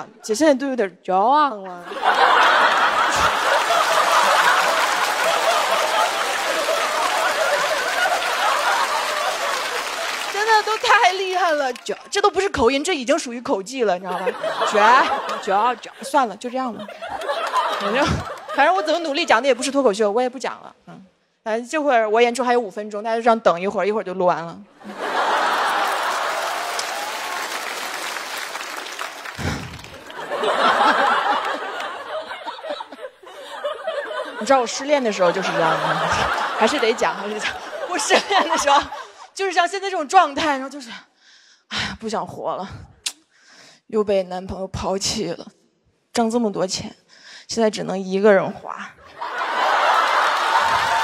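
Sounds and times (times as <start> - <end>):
audience laughing: 1.8 - 11.0, 14.1 - 19.8, 24.8 - 39.3, 49.0 - 51.0
audience clapping: 1.9 - 12.1, 14.1 - 15.8, 17.0 - 19.1, 24.9 - 32.8, 34.4 - 39.0, 49.2 - 51.0.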